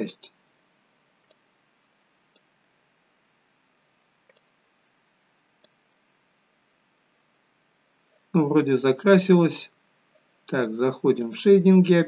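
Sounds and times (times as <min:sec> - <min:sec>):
faint computer mouse clicks: 0:00.5 - 0:01.4, 0:02.3 - 0:02.8, 0:03.7 - 0:04.6, 0:05.6 - 0:06.0.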